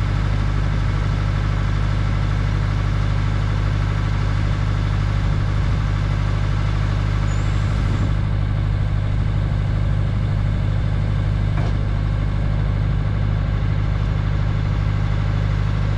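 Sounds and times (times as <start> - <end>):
diesel engine humming: 0.0 - 15.9.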